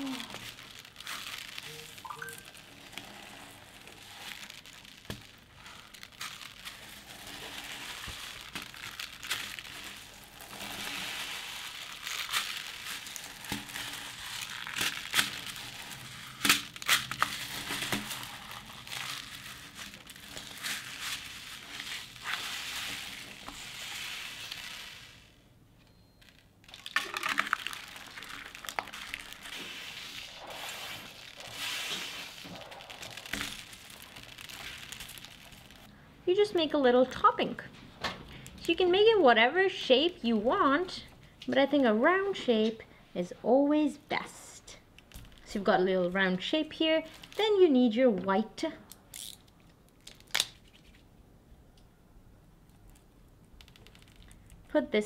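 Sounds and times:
hands kneading crunchy slime: 0:00.0 - 0:25.4, 0:26.7 - 0:35.9.

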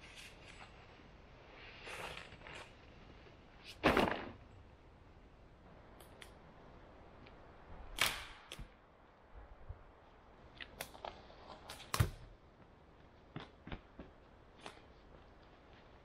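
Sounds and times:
dry sticks snapping: 0:08.0 - 0:08.7.

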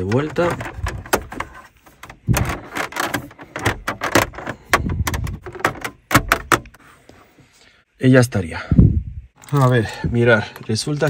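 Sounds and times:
plastic trim knocks and clicks: 0:00.0 - 0:06.8.

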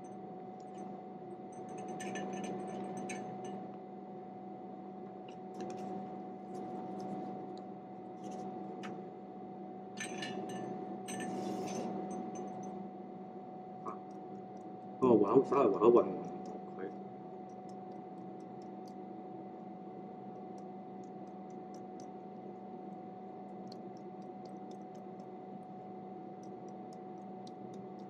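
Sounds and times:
low hum: 0:00.0 - 0:18.9.

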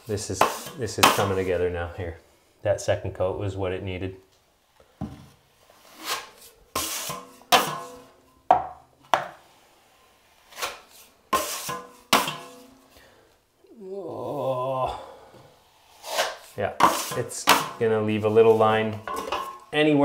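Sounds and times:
taping knife scraping compound: 0:00.1 - 0:01.6, 0:05.5 - 0:08.0, 0:09.2 - 0:12.7, 0:15.6 - 0:19.0.

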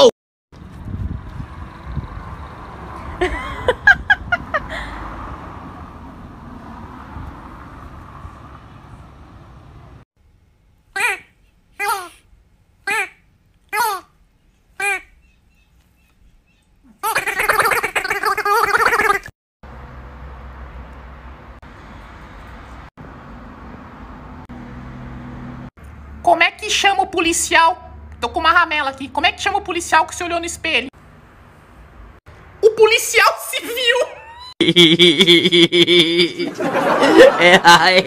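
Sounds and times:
distant street traffic: 0:00.6 - 0:38.0
short high-pitched yelps: 0:11.0 - 0:12.2, 0:14.8 - 0:15.2.

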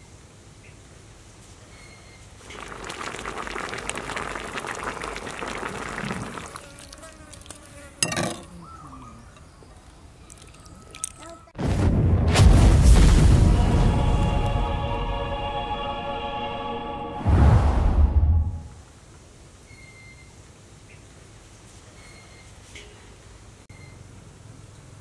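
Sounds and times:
sauce pouring and splashing: 0:02.4 - 0:07.8, 0:09.8 - 0:11.4
loud boom: 0:11.6 - 0:14.9, 0:17.2 - 0:18.8.

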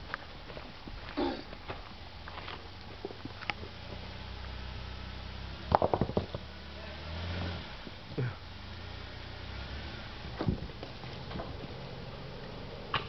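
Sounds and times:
engine running low: 0:01.5 - 0:13.0
sharp knocks: 0:05.7 - 0:06.4.

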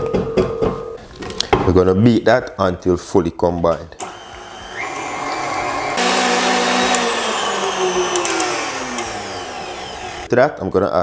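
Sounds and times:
stand mixer whisking: 0:04.0 - 0:10.3.

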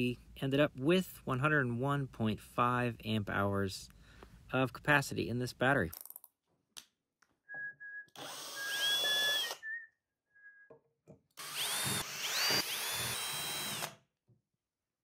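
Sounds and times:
cordless drill whining: 0:08.1 - 0:09.8, 0:11.4 - 0:14.0.

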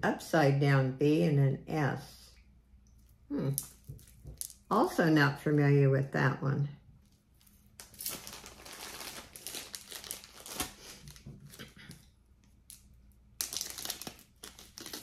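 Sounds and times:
packaging crinkling: 0:07.1 - 0:15.0.

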